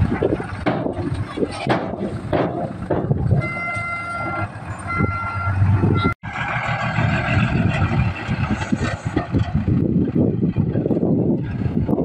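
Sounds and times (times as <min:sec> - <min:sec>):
diesel truck engine running: 0:00.0 - 0:12.0
two-note electronic warning tone: 0:03.4 - 0:06.2.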